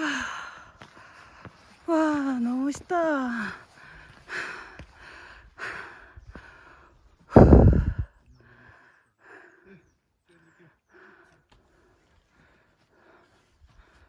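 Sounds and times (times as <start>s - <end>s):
person breathing and sighing: 0.0s - 1.4s, 3.5s - 9.8s
breath buffeting the microphone: 7.3s - 8.2s.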